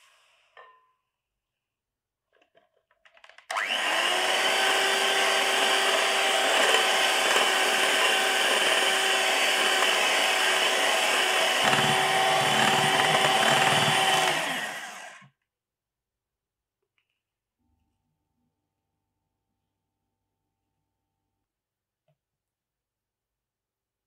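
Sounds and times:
electric hand mixer whining: 3.5s - 15.3s
beaters whisking in a glass bowl: 4.6s - 14.6s.

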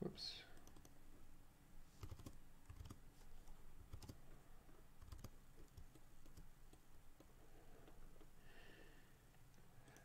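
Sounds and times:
mouse and keyboard clicks: 2.0s - 3.0s, 5.0s - 8.3s.

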